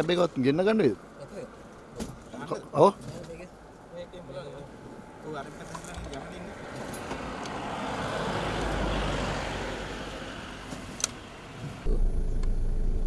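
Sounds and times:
low vehicle engine rumble: 3.2s - 13.0s.

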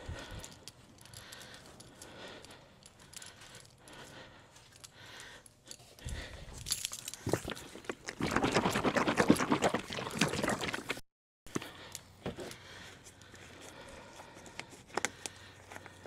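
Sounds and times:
plastic jug rustling and clicking: 6.8s - 13.3s
oil pouring: 7.3s - 11.0s.

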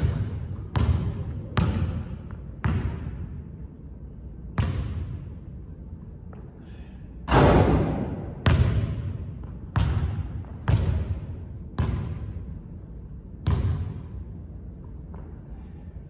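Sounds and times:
basketball bouncing on wooden floor: 0.0s - 3.2s, 7.3s - 12.4s, 13.4s - 14.0s.

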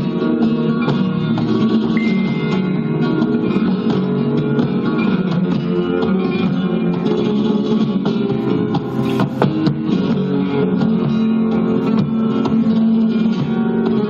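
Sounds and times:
flamenco guitar playing: 2.0s - 5.2s.

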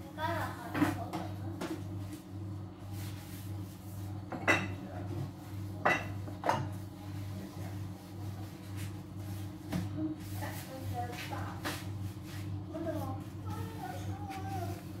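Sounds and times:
dishes clinking: 4.3s - 4.8s, 5.8s - 6.8s.

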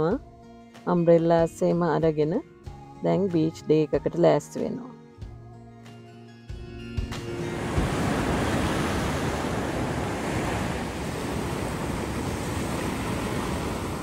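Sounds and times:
ocean surf breaking on beach: 7.3s - 14.0s
wind rumbling on microphone: 7.5s - 14.0s.

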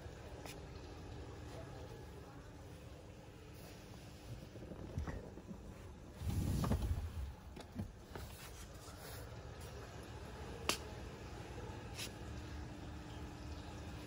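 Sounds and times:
low rubbing rumble: 4.0s - 7.6s.

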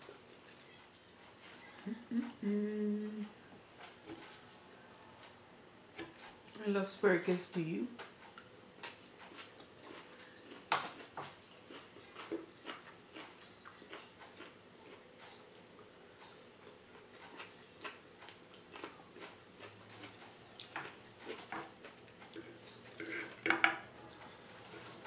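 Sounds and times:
chewing with mouth clicks: 8.1s - 23.4s.

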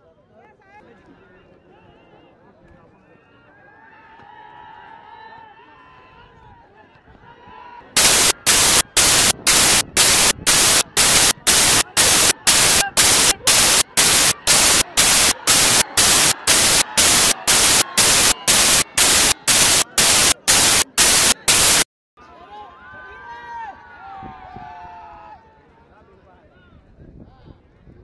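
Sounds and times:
pulsing static hiss: 8.0s - 21.9s.

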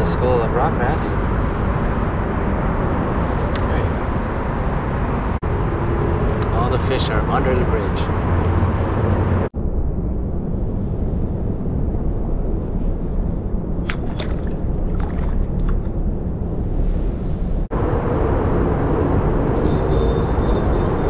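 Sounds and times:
steady low rumble: 0.0s - 21.0s
fish splashing in water: 13.9s - 15.9s.

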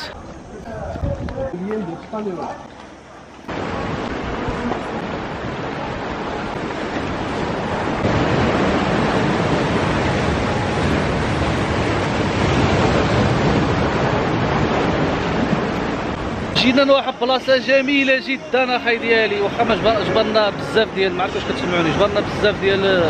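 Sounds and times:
waves breaking on rocky shore: 3.5s - 23.0s.

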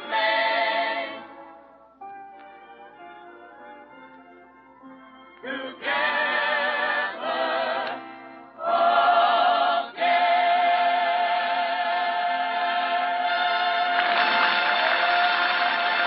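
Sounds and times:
choir singing on old radio: 0.0s - 1.6s, 5.4s - 16.0s.

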